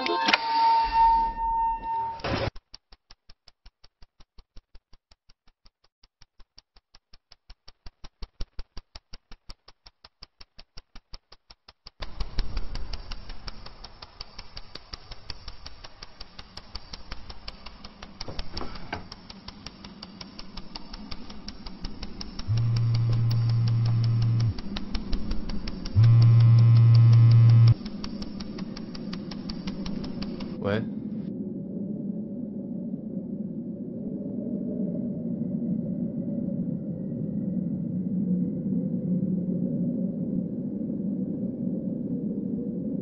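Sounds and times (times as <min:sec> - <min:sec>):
crackling hiss: 0:02.4 - 0:31.3
rapid clicks: 0:02.5 - 0:30.8.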